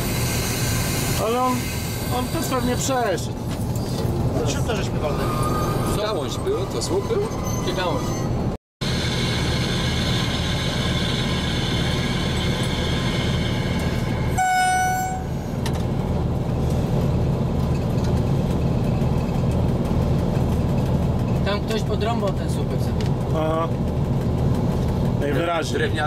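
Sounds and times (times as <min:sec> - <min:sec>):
diesel locomotive rumble: 0:00.0 - 0:26.0
locomotive horn blast: 0:14.0 - 0:15.7.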